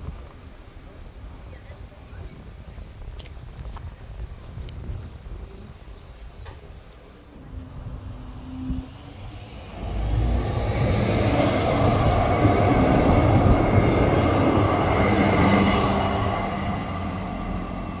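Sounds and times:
tram wheels rumbling on rails: 0:06.0 - 0:18.0.

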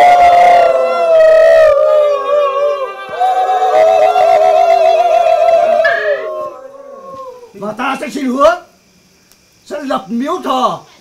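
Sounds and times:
voices wailing a ritual chant: 0:00.0 - 0:08.1.

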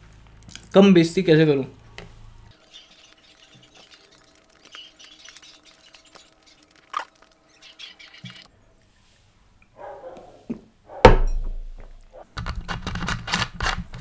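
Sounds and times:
wet chewing and smacks: 0:02.4 - 0:08.5.

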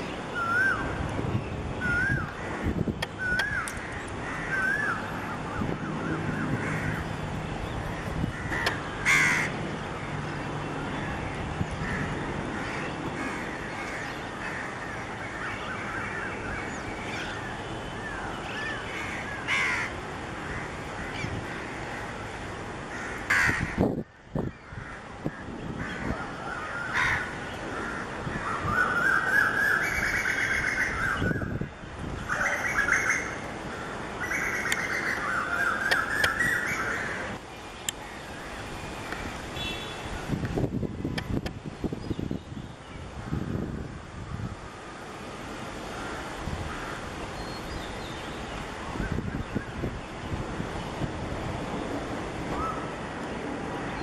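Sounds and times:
outdoor background noise: 0:00.0 - 0:54.0
birds chirping and squawking: 0:01.8 - 0:10.2, 0:11.0 - 0:22.2, 0:22.9 - 0:37.4
crows cawing: 0:02.0 - 0:05.0, 0:06.0 - 0:07.1, 0:07.9 - 0:09.6, 0:11.8 - 0:16.3, 0:18.6 - 0:22.2, 0:22.9 - 0:23.8, 0:24.6 - 0:31.6, 0:32.3 - 0:37.3, 0:45.8 - 0:47.1.

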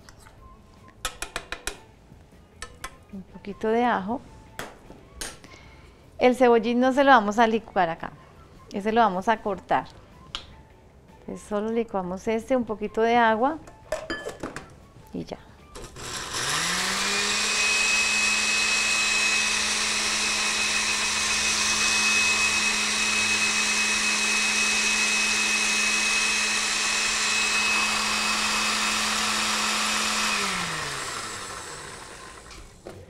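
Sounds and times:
blender running with high whine: 0:15.8 - 0:32.8.

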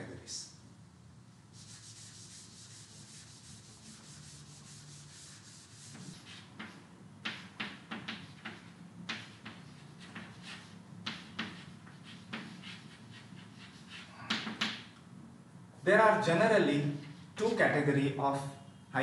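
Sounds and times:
duster rubbing on chalkboard: 0:01.5 - 0:14.8
chalk writing on board: 0:01.5 - 0:14.9.

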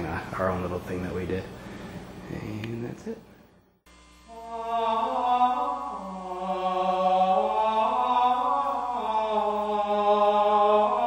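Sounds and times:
man singing chant unaccompanied: 0:04.3 - 0:11.0.

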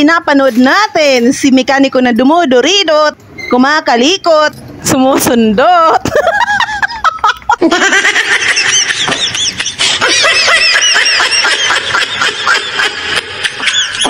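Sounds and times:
high-pitched giggling laughter: 0:06.0 - 0:14.0.

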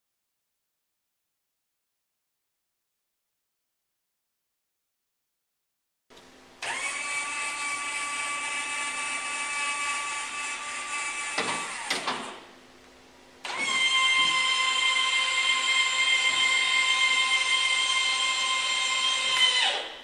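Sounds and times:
electric actuators whining: 0:06.6 - 0:12.5, 0:13.4 - 0:20.0.

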